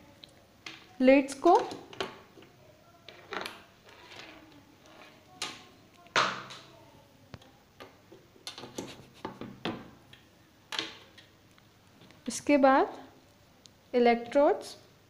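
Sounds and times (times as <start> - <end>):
cables handled: 7.3 - 9.6.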